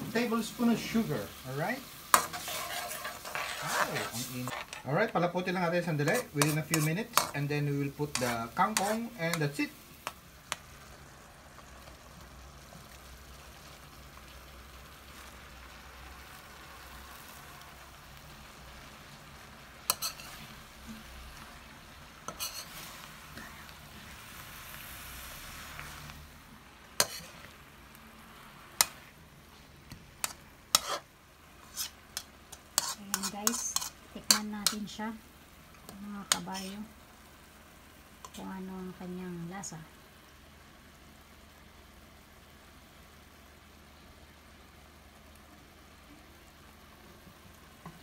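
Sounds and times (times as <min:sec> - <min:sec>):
utensils scraping a wok: 0:00.0 - 0:10.2, 0:19.8 - 0:21.5, 0:22.2 - 0:24.4, 0:27.0 - 0:27.6, 0:30.2 - 0:35.0, 0:35.8 - 0:36.9, 0:38.2 - 0:38.5
sauce sizzling in a wok: 0:00.0 - 0:48.0.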